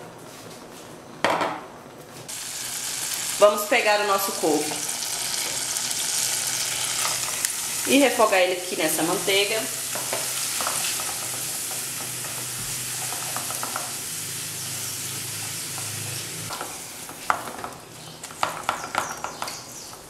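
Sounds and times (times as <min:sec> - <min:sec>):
greens sizzling in butter: 0:02.3 - 0:17.3.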